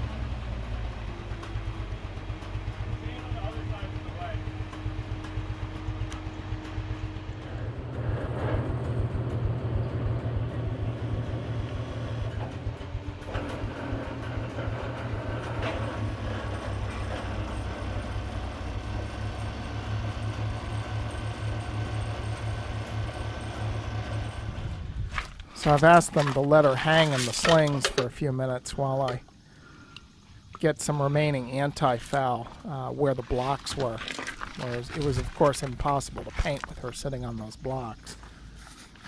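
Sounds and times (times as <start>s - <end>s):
lift engine running: 0.0s - 28.2s.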